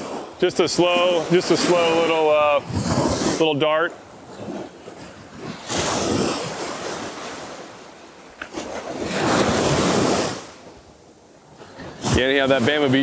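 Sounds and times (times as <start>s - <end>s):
surf breaking on beach: 0.0s - 13.0s.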